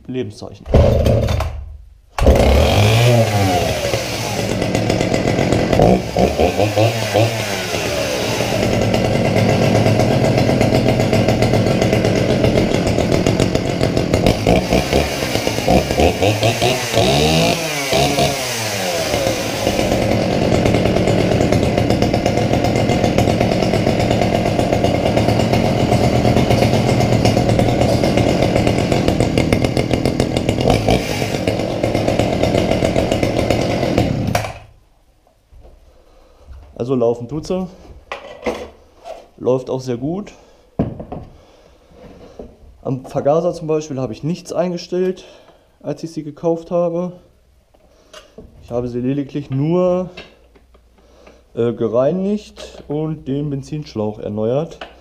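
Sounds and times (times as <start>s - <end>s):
chainsaw engine revving: 0.7s - 1.6s, 2.2s - 34.7s.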